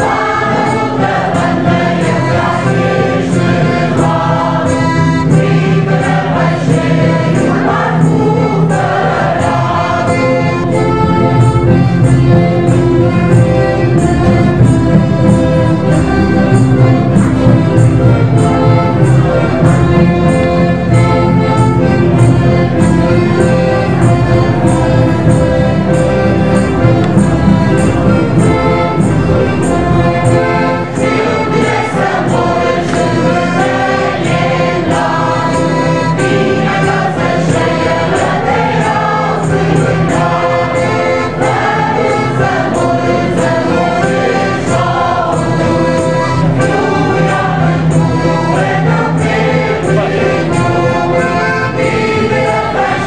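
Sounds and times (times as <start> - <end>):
instrumental accompaniment: 0.0 - 53.0
mixed choir singing: 0.0 - 53.0.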